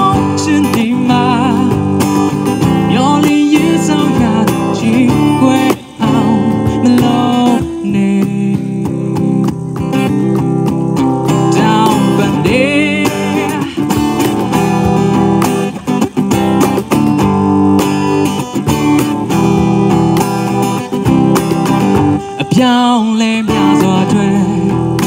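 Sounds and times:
man singing into microphone: 0:00.0 - 0:10.0, 0:11.3 - 0:15.8, 0:22.2 - 0:25.0
acoustic guitar strummed: 0:00.0 - 0:25.0
cajon tapping beat: 0:00.0 - 0:25.0.

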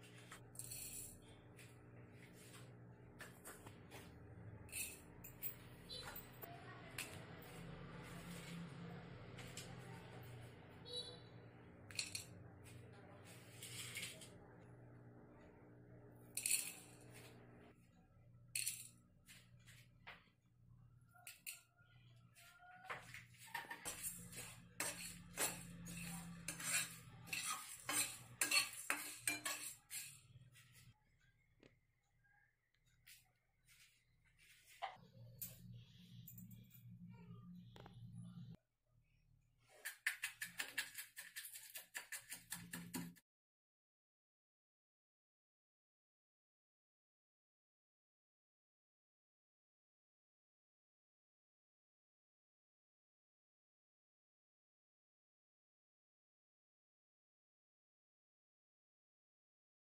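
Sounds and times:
utensil scraping spices in pan: 0:13.2 - 0:14.4, 0:23.5 - 0:30.4, 0:39.7 - 0:43.2
spices tapping into metal pan: 0:39.9 - 0:43.2.

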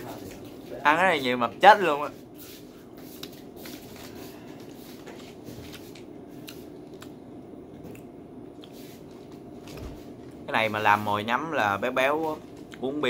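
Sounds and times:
steady low hum: 0:00.0 - 0:13.0
chewing snack: 0:05.6 - 0:09.4.

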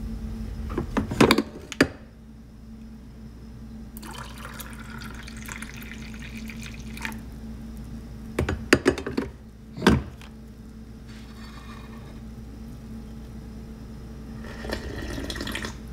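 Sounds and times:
low steady hum: 0:00.0 - 0:15.9
frothed milk pouring into mug: 0:04.0 - 0:07.2.

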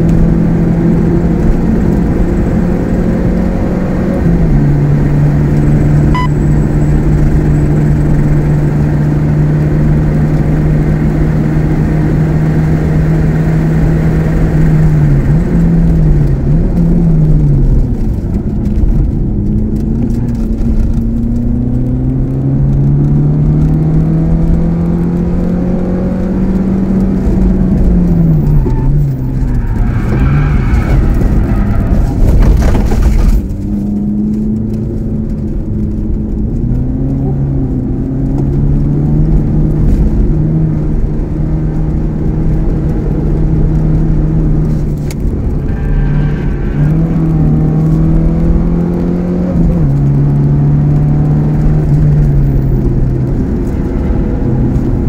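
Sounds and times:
harsh rushing noise: 0:27.2 - 0:34.0, 0:43.0 - 0:50.1
car engine revving hard: 0:36.8 - 0:55.0.

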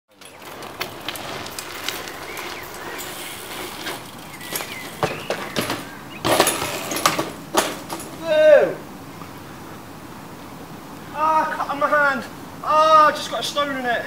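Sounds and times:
bike crashing onto concrete: 0:00.1 - 0:08.2
bike tyres rolling on concrete: 0:00.1 - 0:09.8.

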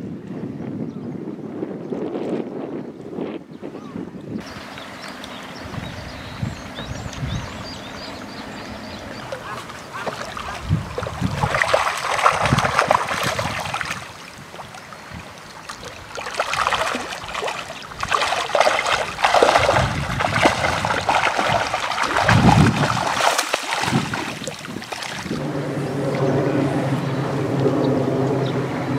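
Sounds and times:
fish splashing and thrashing in water: 0:09.1 - 0:25.5.

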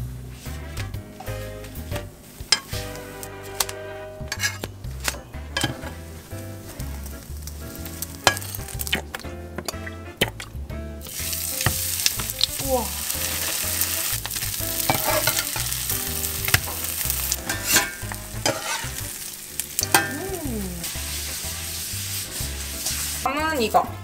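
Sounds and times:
food sizzling in frying pan: 0:01.2 - 0:03.7, 0:05.6 - 0:09.1, 0:11.0 - 0:24.0
utensil clicking in pan: 0:13.2 - 0:19.0.

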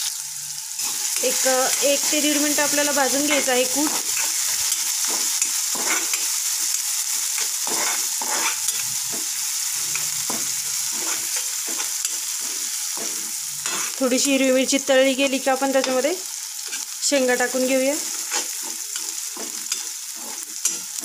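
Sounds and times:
chilli and garlic sizzling in oil: 0:00.0 - 0:21.0
spatula scraping and knocking pan: 0:00.8 - 0:14.0, 0:18.0 - 0:21.0.

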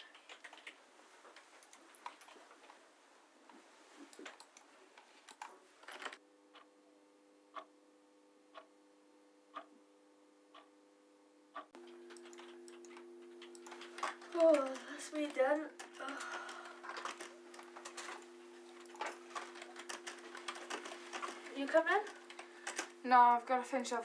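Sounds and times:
faint steady hum: 0:00.0 - 0:24.0
keyboard typing clicks: 0:00.1 - 0:00.8, 0:11.6 - 0:23.0
wall clock ticking: 0:07.5 - 0:07.7, 0:08.5 - 0:08.7, 0:09.5 - 0:09.8, 0:10.5 - 0:10.7, 0:11.5 - 0:23.4.

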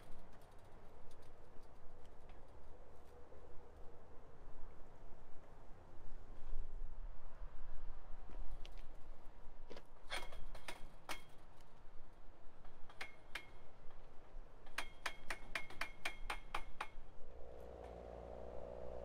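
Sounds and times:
steady low hum: 0:17.2 - 0:19.0.

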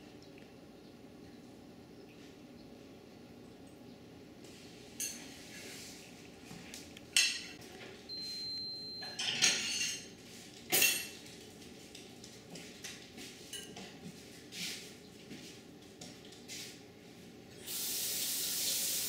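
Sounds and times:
dishes clinking and clattering: 0:05.0 - 0:05.7, 0:07.2 - 0:07.6, 0:09.0 - 0:11.5, 0:12.5 - 0:14.0.

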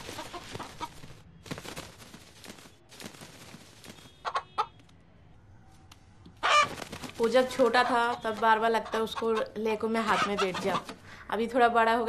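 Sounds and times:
rooster clucking: 0:04.2 - 0:04.8, 0:07.7 - 0:11.0.

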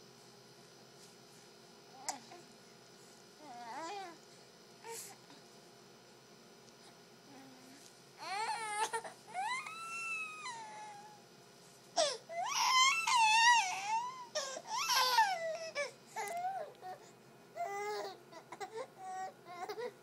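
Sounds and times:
baby crying: 0:08.2 - 0:11.2, 0:12.0 - 0:17.0.

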